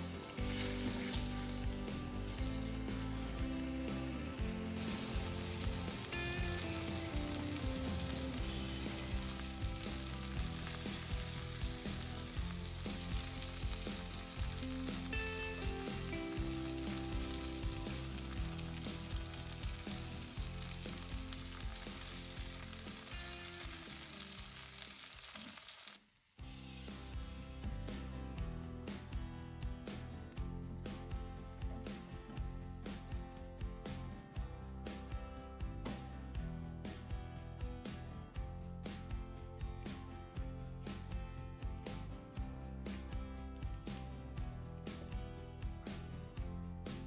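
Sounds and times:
chicken sizzling in a pan: 0.0 - 27.1.

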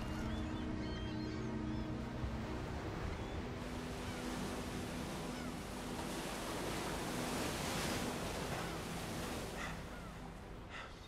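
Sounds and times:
waves breaking over rocks: 3.6 - 10.0.

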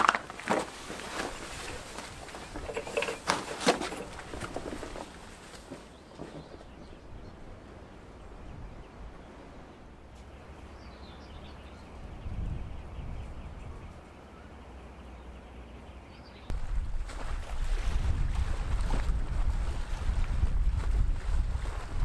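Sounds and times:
wind buffeting microphone: 5.9 - 14.1, 16.5 - 22.0.

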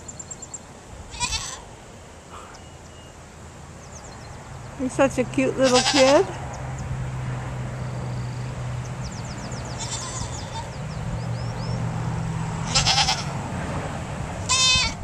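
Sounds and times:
goats bleating: 1.1 - 1.7, 5.6 - 6.3, 9.7 - 10.8, 12.6 - 13.4, 14.4 - 15.0.

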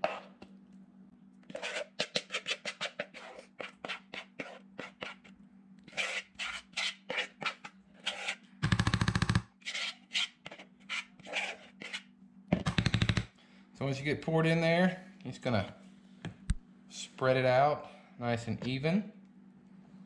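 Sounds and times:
spoon scraping plastic bowl: 0.0 - 0.5, 1.5 - 5.3, 5.9 - 8.4, 9.6 - 12.1.

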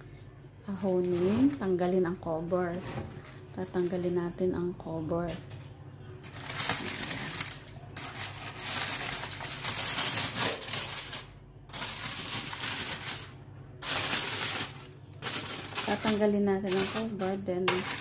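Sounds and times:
steady low hum: 0.0 - 18.0
foil and paper crinkling: 0.7 - 1.8, 6.2 - 18.0.

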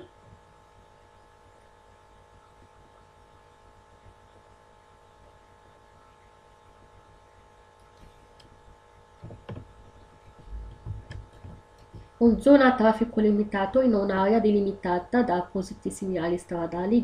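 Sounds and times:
electrical hum with whine: 0.0 - 17.0
soft low thumps: 9.2 - 12.5.

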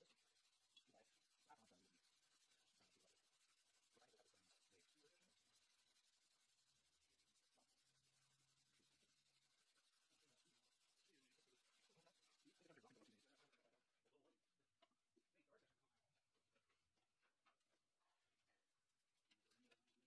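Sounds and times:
sandpaper rubbing on metal: 0.0 - 13.4.

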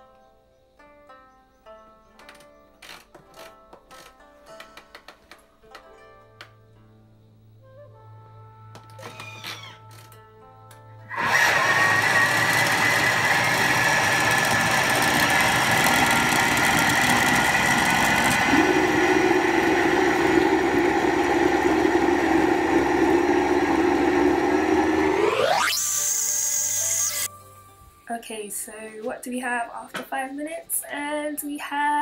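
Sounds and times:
blender motor running: 11.1 - 27.3
low hum: 11.2 - 27.3.

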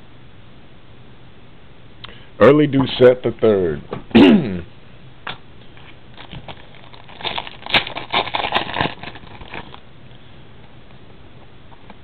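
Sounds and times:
plastic packaging crinkling: 6.1 - 9.9.

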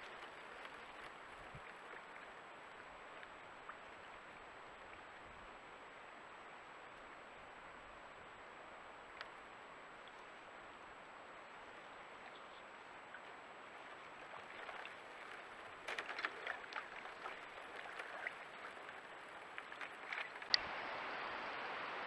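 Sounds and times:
microphone hiss: 0.0 - 14.4, 18.4 - 22.0
clicks and crackles in water: 14.0 - 20.6.

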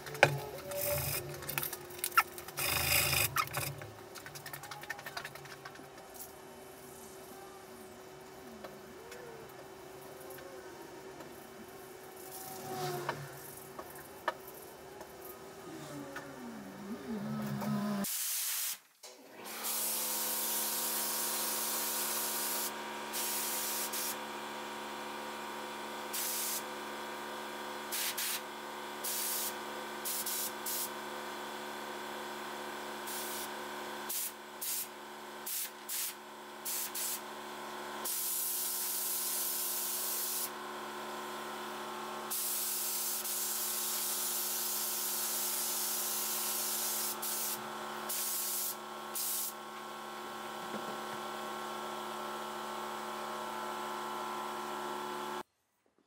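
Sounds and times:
spray gun hissing: 18.0 - 18.8, 26.2 - 26.6, 29.0 - 30.9, 35.5 - 37.2, 38.1 - 40.5, 42.3 - 49.6.

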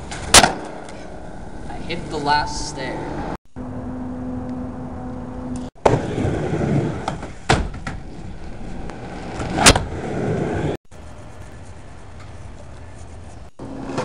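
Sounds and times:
skateboard clacks and thuds: 5.8 - 8.1
skateboard wheels rolling on wood: 5.8 - 14.0.

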